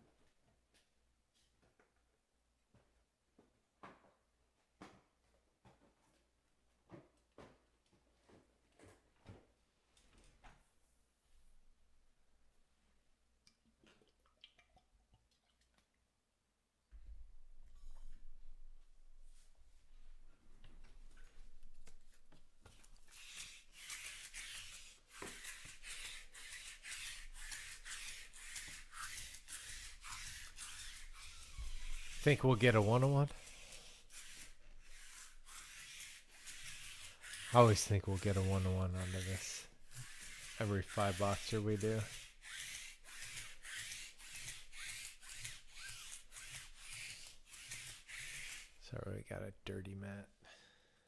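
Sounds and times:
lint roller sheet crackling: 34.2s - 44.1s.

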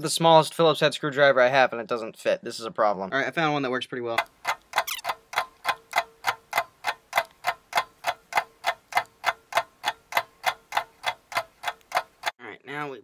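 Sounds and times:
clock ticking: 4.2s - 12.4s.

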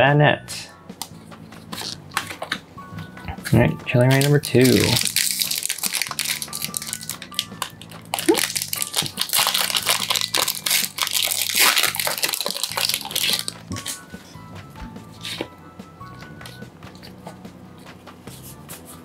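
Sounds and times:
foil wrapper crinkling and tearing: 1.7s - 2.6s, 3.9s - 14.0s, 15.2s - 15.4s.

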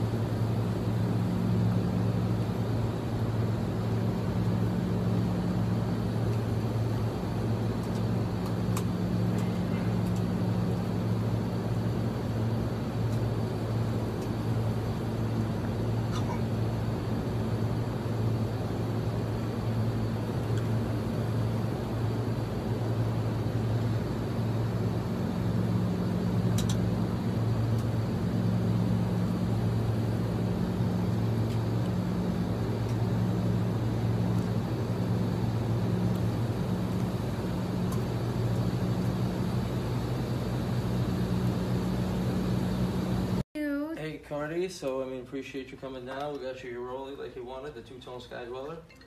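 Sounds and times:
low cabin hum: 0.0s - 49.0s.

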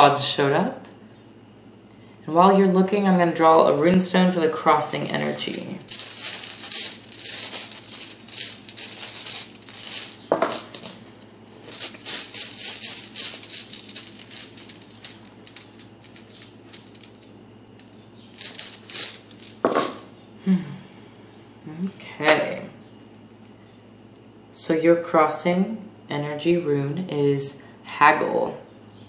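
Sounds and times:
stones rattling in cloth pouch: 4.8s - 20.0s.

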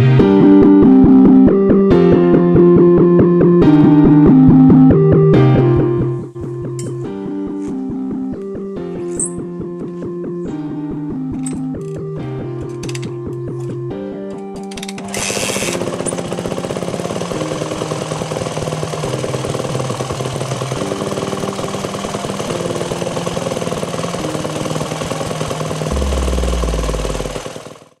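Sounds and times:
motocross bike engine starting and running: 14.6s - 28.0s.

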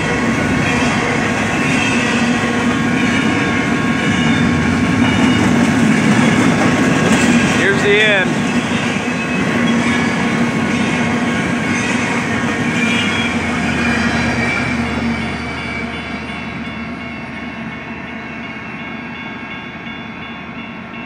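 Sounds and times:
train wheels clattering on rails: 0.0s - 16.8s.

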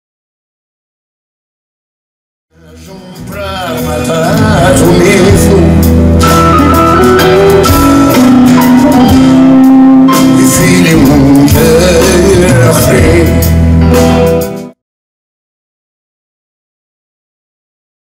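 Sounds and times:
man singing into microphone: 2.5s - 6.0s, 10.1s - 13.5s
instrumental accompaniment: 2.6s - 14.8s
acoustic guitar strumming: 3.1s - 14.6s.

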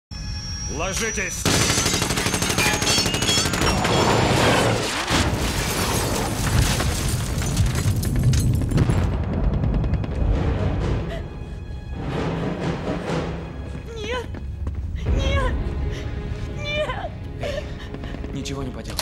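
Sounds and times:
rapid gunfire: 1.4s - 4.4s
explosion booms: 7.2s - 11.1s.

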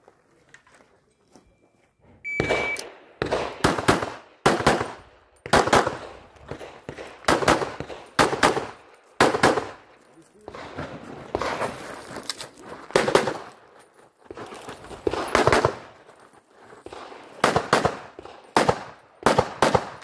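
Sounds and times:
shot timer beep: 2.2s - 2.9s
pistol shots: 2.4s - 9.9s, 15.0s - 15.9s, 16.8s - 20.0s.

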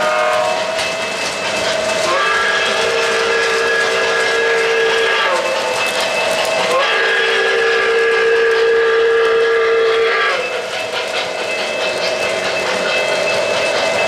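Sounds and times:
model train steam whistle: 0.0s - 0.9s, 2.0s - 10.7s
model train running noise: 0.0s - 14.0s.

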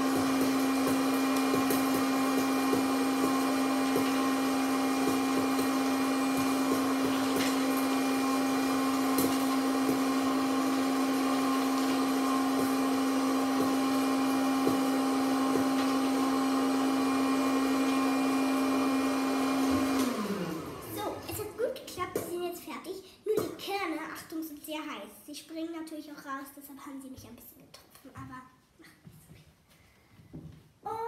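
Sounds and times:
popcorn machine fan humming: 0.0s - 21.8s.

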